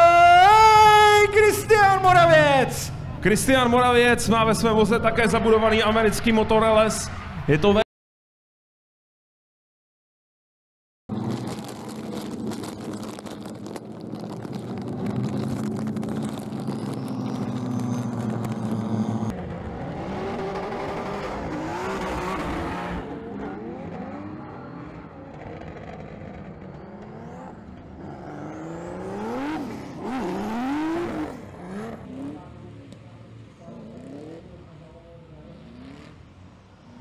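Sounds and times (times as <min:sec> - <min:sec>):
drift car engines revving: 0:11.1 - 0:37.0.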